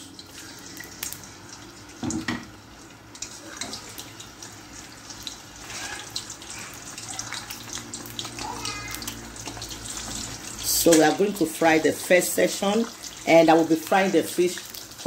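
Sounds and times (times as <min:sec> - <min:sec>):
fish sizzling in hot oil: 0:00.0 - 0:15.0.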